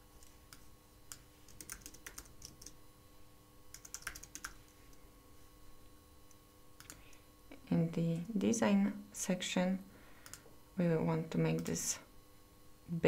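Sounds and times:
computer keyboard typing: 0.5 - 2.8, 3.7 - 4.8, 10.2 - 10.4.

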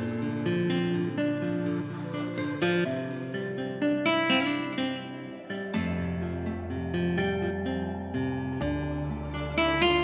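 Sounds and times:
soft plucked harp-like notes: 0.0 - 10.0.

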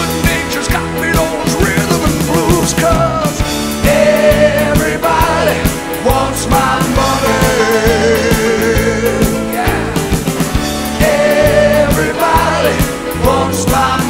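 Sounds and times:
rock song with singing: 0.0 - 14.0.

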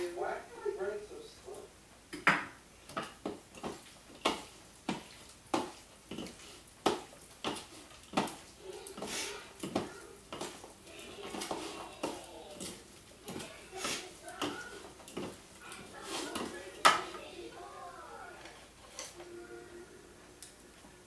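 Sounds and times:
wooden spoons knocking on a bowl: 9.0 - 15.4, 16.1 - 17.2.

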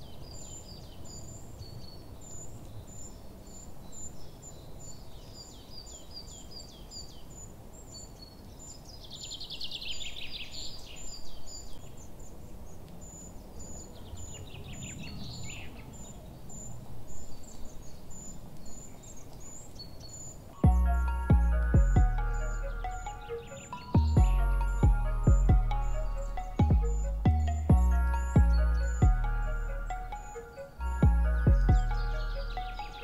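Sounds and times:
low background rumble: 20.6 - 23.2, 23.9 - 33.0
rapid descending bird calls: 20.6 - 33.0.

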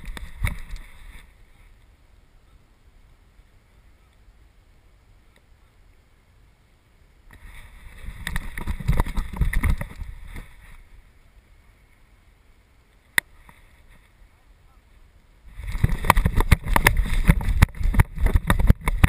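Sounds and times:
camera rustling and scraping: 0.0 - 1.8, 7.3 - 11.0, 15.5 - 19.0.

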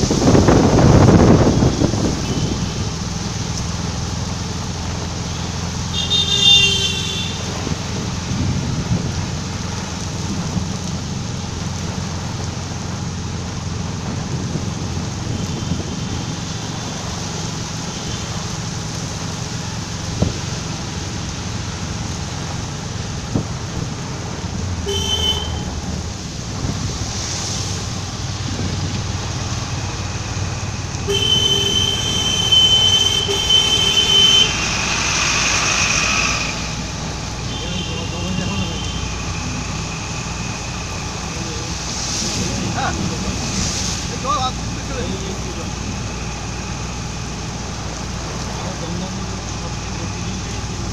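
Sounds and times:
road noise on wet streets: 0.0 - 50.9
vehicle engine rumble: 0.0 - 50.9
vehicle horn: 2.2 - 2.7, 5.9 - 7.6, 24.8 - 25.8, 31.0 - 34.9.

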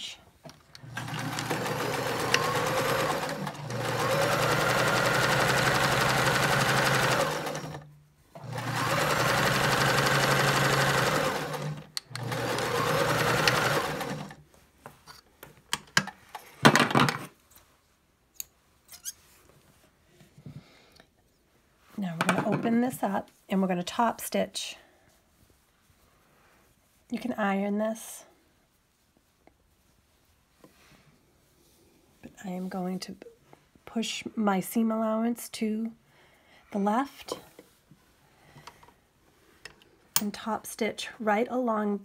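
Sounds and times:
electric sewing machine stitching: 0.8 - 14.4.

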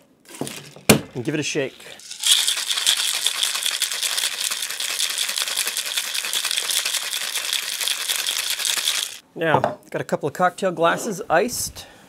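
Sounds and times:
ice rattling in cocktail shaker: 0.3 - 9.2.

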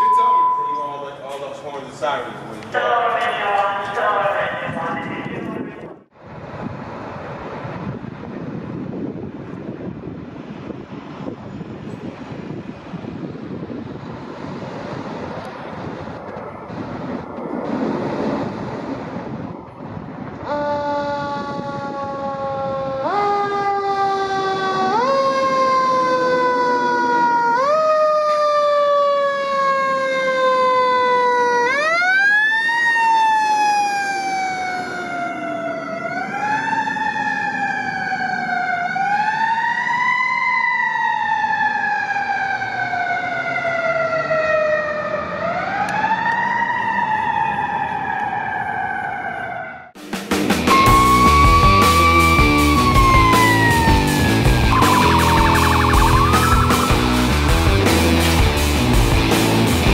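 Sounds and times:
fire engine siren wailing: 0.0 - 1.6, 13.2 - 50.0, 50.6 - 58.2.

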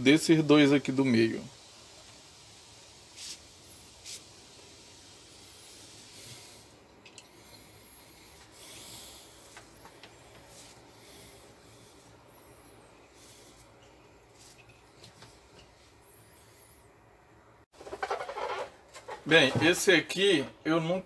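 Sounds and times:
cord rubbing and swishing: 3.0 - 4.3, 9.2 - 16.0, 17.8 - 19.9.

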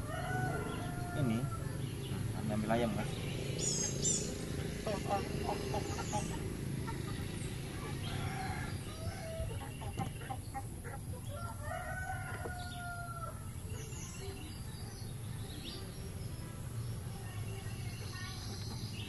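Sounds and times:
rooster crowing: 0.0 - 1.8, 7.8 - 9.5, 11.3 - 13.5
chicken clucking: 4.8 - 8.6, 9.2 - 13.0.

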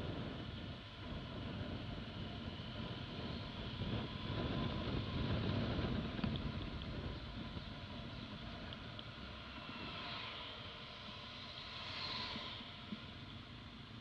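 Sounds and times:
wind over microphone: 0.0 - 10.4.

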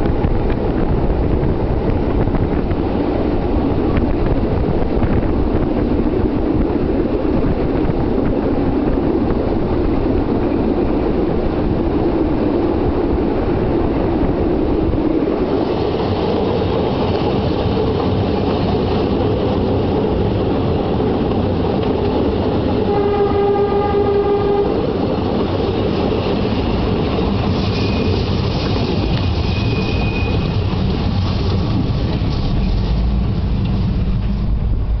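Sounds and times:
train wheels rumbling on rails: 0.0 - 35.0
wind: 0.0 - 35.0
locomotive horn held note: 22.8 - 24.8
faint thin high squeal: 27.6 - 30.6.

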